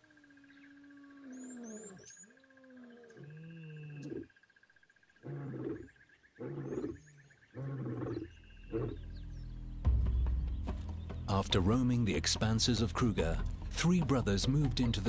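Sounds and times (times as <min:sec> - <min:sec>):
faint bird chirps: 0:00.0 - 0:11.2
lion grunting: 0:05.2 - 0:09.0
lion roaring: 0:05.2 - 0:09.0.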